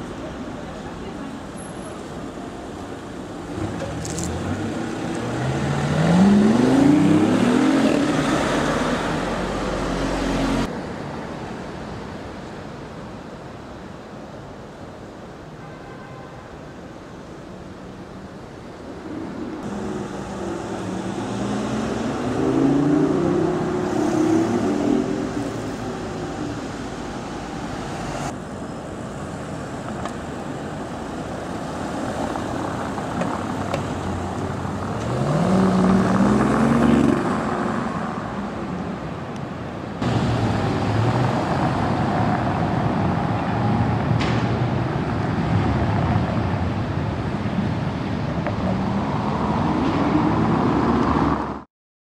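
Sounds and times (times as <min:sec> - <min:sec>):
road traffic: 0:00.0 - 0:51.7
sports car accelerating: 0:03.5 - 0:10.7, 0:19.6 - 0:25.5, 0:33.9 - 0:38.2.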